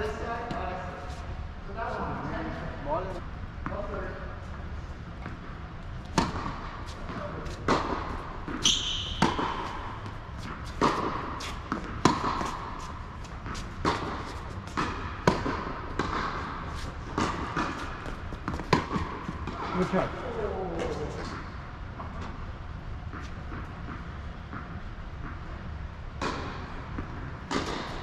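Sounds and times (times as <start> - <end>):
tennis ball struck and bouncing: 5.2 - 19.8, 26.2 - 28.0
shoe squeak on court: 8.6 - 9.8.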